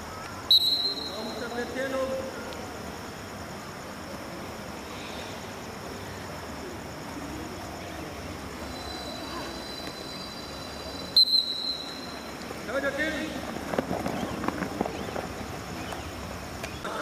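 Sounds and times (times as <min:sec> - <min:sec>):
distant voices: 0:00.0 - 0:17.0
referee's whistle blast: 0:00.5 - 0:01.5, 0:08.7 - 0:12.2.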